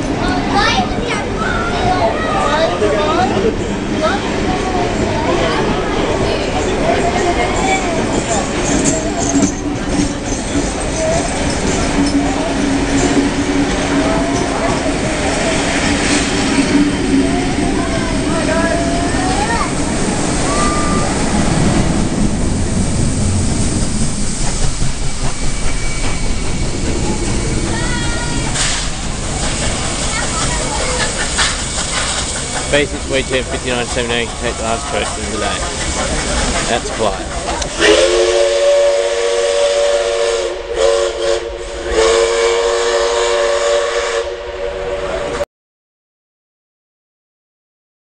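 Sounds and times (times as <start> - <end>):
steam train rumbling past: 0.0 - 45.4
steam whistle chord: 37.8 - 45.1.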